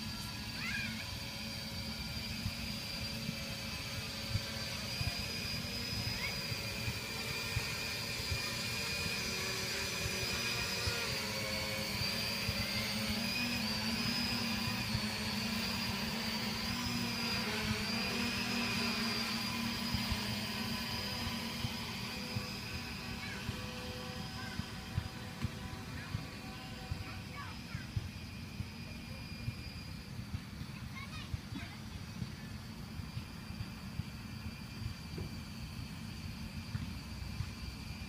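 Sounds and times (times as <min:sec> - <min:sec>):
drone propellers whining: 0:00.0 - 0:38.0.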